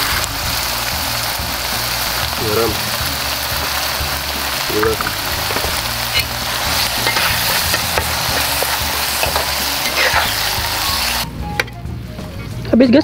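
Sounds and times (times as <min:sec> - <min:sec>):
sauce sizzling in oil: 0:00.0 - 0:11.3
metal spatula scraping a pan: 0:04.8 - 0:11.2.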